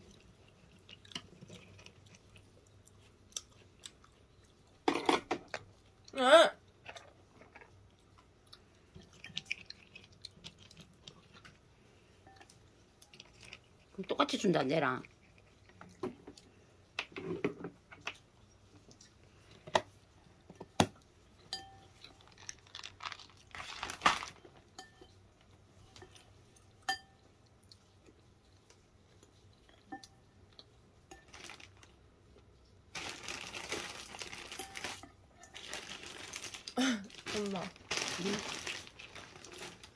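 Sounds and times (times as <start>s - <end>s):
metal spoon clinking in bowl: 21.5s - 21.9s, 24.8s - 25.2s, 26.8s - 27.2s
crinkling rustle: 21.9s - 24.8s, 31.1s - 32.0s, 32.9s - 39.9s.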